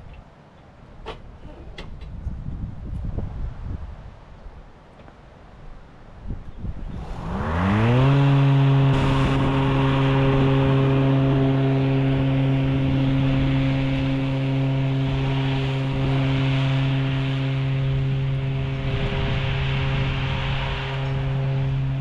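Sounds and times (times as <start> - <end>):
electric mower motor whine: 7.0 - 22.0.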